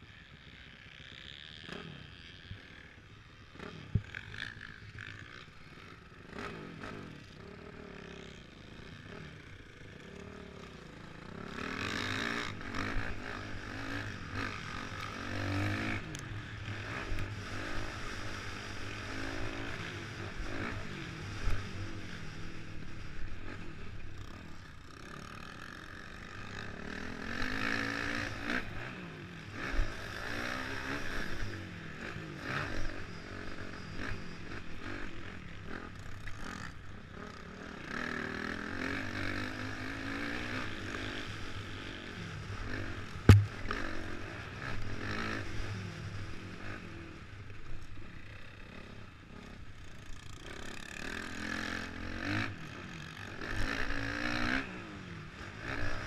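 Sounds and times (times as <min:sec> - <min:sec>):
dirt bike engine revving: 0:03.5 - 0:23.7, 0:24.9 - 0:46.8, 0:50.2 - 0:56.0
sharp knocks: 0:43.3 - 0:43.6.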